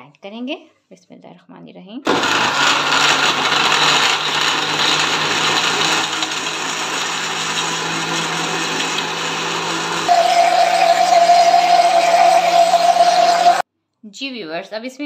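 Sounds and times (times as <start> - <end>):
electric blender running: 2.1 - 13.6.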